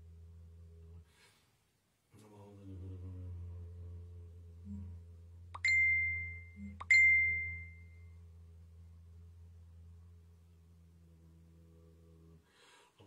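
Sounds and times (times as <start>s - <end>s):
low hummed tone: 2.2s - 12.5s
metal chime ringing: 5.6s - 7.9s.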